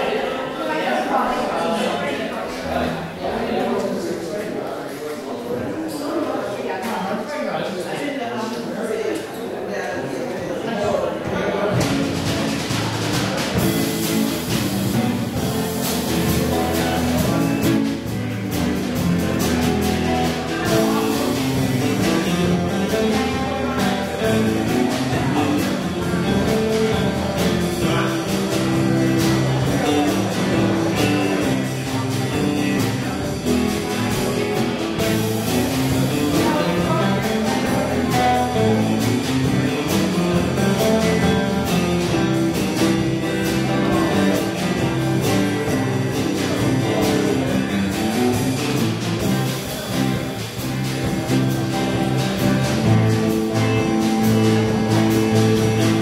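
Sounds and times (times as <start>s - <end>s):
bass guitar: 11.2s - 56.0s
drum kit beat: 11.2s - 56.0s
electric guitars: 11.3s - 56.0s.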